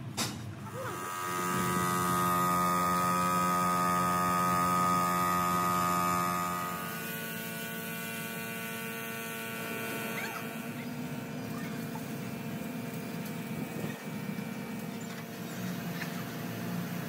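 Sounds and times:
motor humming: 0:00.6 - 0:17.0.

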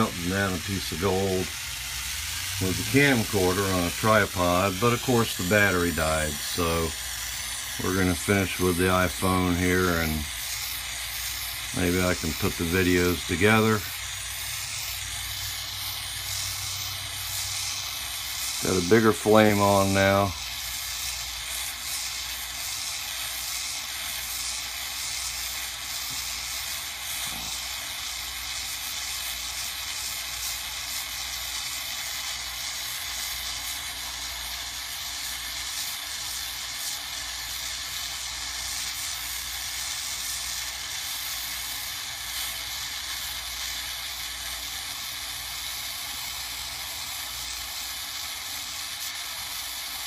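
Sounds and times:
gas torch flame hissing: 0:00.0 - 0:50.0.

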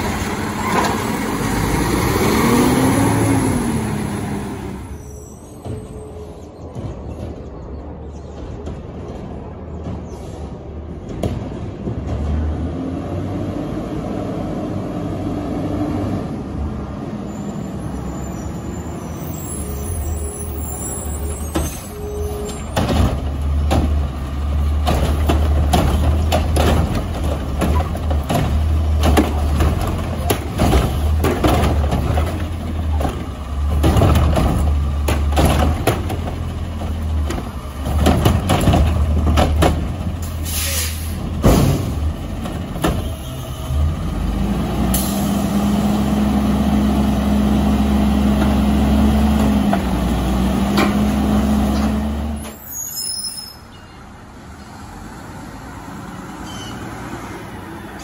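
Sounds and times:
engine and hydraulic hum: 0:00.0 - 0:58.0
cart clanks and knocks: 0:06.6 - 0:10.3, 0:21.3 - 0:43.2, 0:50.7 - 0:52.6.

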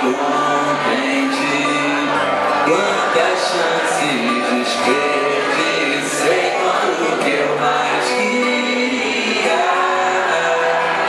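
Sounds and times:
acoustic guitar: 0:00.0 - 0:11.0
man singing into a microphone: 0:00.0 - 0:11.0.

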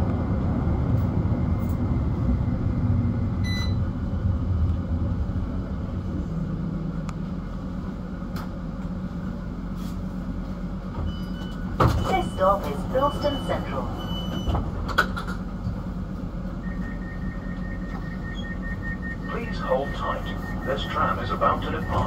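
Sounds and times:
tram rumbling on track: 0:00.0 - 0:22.0
short beep: 0:03.4 - 0:03.8, 0:16.6 - 0:22.0.

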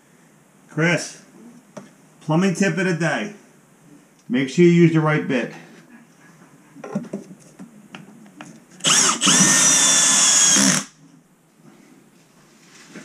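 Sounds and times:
cordless drill driving screw: 0:08.8 - 0:10.9.

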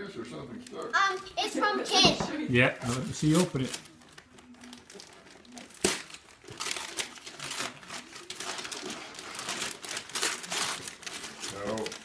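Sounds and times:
wrapping paper crinkling and tearing: 0:02.8 - 0:12.0.

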